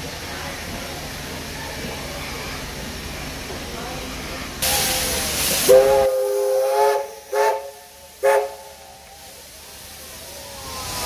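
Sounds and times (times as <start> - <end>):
steam hissing: 0.0 - 11.0
steam locomotive whistle: 5.6 - 9.2.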